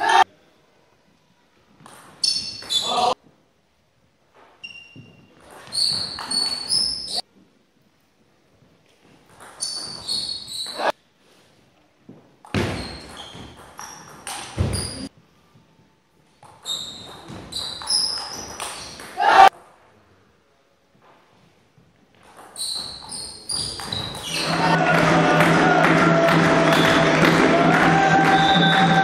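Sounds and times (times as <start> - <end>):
shoe squeaks on wooden floor: 2.1 - 3.2, 4.4 - 7.3, 9.4 - 11.0, 12.4 - 15.2, 16.4 - 19.2, 22.2 - 24.8.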